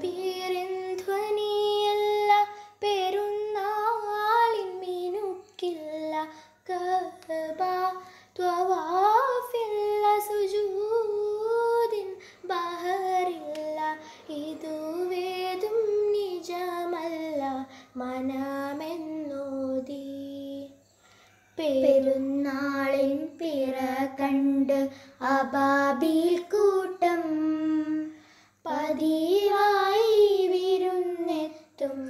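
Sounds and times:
singer breathing: 0:08.0 - 0:08.4, 0:17.7 - 0:18.0, 0:20.8 - 0:21.6, 0:24.9 - 0:25.2, 0:28.1 - 0:28.6.

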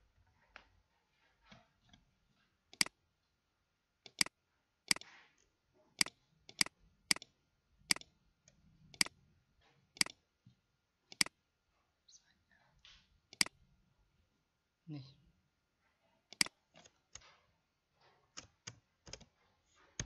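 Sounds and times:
mouse and keyboard clicks: 0:02.7 - 0:03.0, 0:04.1 - 0:04.3, 0:04.9 - 0:05.2, 0:06.0 - 0:09.2, 0:09.9 - 0:10.2, 0:11.1 - 0:11.4, 0:12.9 - 0:13.6, 0:16.3 - 0:17.4, 0:18.3 - 0:20.0.

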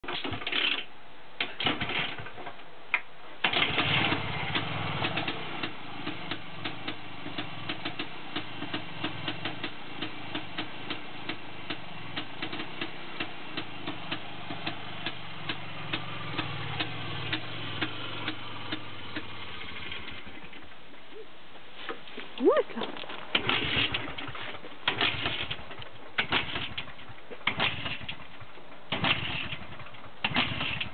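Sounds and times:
engine kickstarter kicks: 0:03.4 - 0:21.0, 0:22.9 - 0:30.9
two-stroke engine running: 0:03.5 - 0:20.6, 0:23.3 - 0:25.6, 0:26.2 - 0:28.3, 0:28.9 - 0:30.9.

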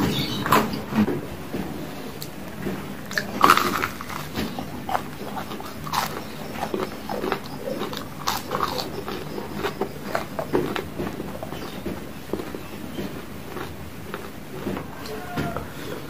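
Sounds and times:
person biting and chewing fried snacks: 0:03.1 - 0:11.6, 0:12.3 - 0:16.0.

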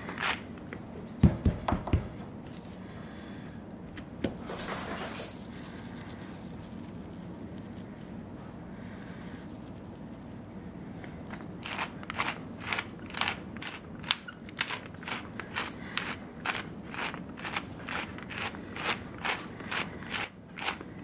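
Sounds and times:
pepper grinder crunching: 0:00.0 - 0:00.8, 0:05.4 - 0:08.2, 0:11.3 - 0:21.0
low room hum: 0:00.0 - 0:21.0.

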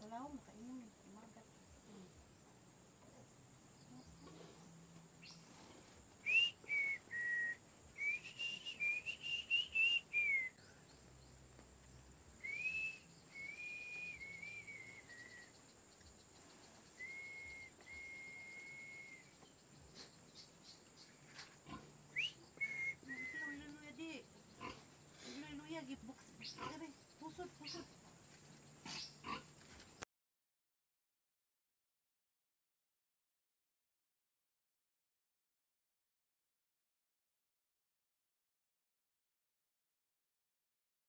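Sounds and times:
person whistling a tune: 0:06.2 - 0:10.6, 0:12.4 - 0:15.5, 0:17.0 - 0:19.3, 0:22.2 - 0:23.7.

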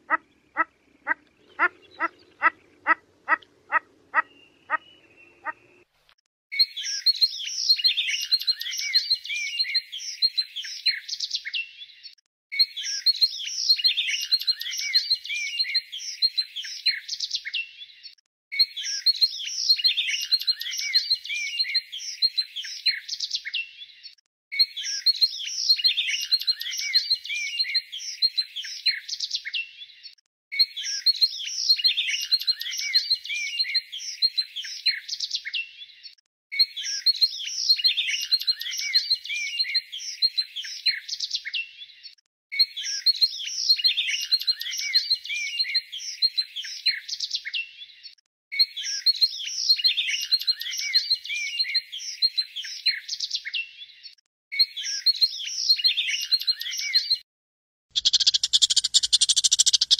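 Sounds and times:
songbirds chirping: 0:00.0 - 0:05.9, 0:58.0 - 0:59.9.

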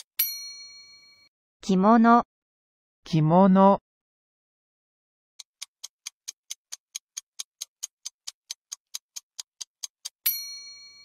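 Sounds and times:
quick clock ticks: 0:05.4 - 0:11.0.

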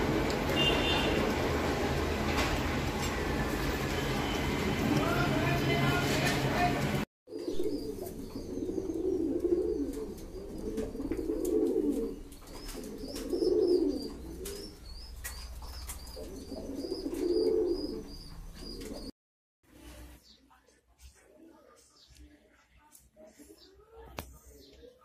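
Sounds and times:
pigeons cooing: 0:07.3 - 0:19.1.

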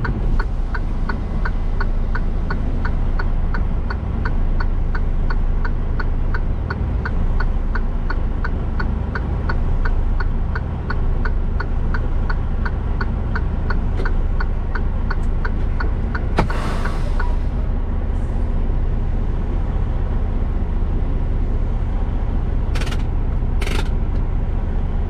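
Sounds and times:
truck engine idling: 0:00.0 - 0:25.0
sharp click: 0:22.8 - 0:24.2.

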